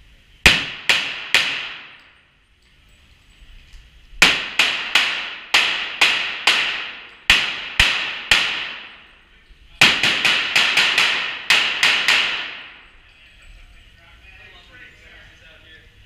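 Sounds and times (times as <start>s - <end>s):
echoing pistol shots: 0.4s - 2.0s, 4.2s - 9.1s, 9.8s - 12.8s.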